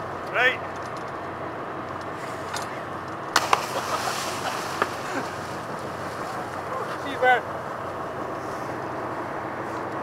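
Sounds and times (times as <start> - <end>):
sea water rushing: 3.4 - 7.6.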